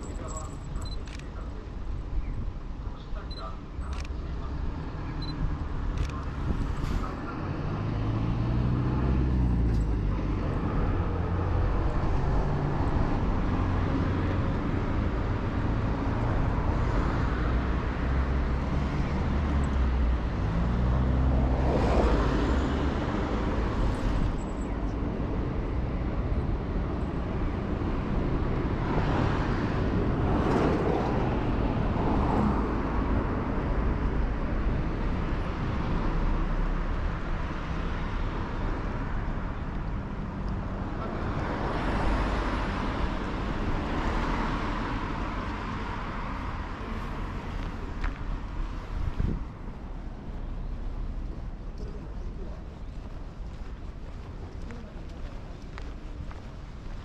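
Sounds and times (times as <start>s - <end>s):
road traffic passing: 0.0s - 57.0s.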